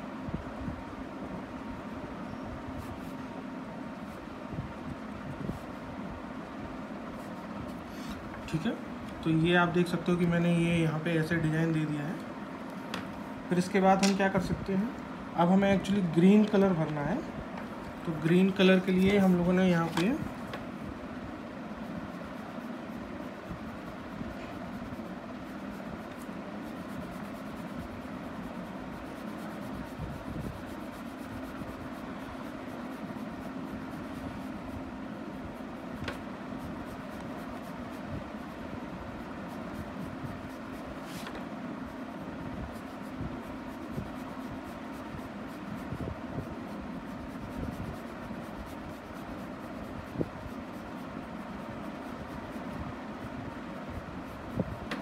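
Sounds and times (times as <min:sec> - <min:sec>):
steady low hum: 0:00.0 - 0:55.0
pencil scratching on paper: 0:21.7 - 0:55.0.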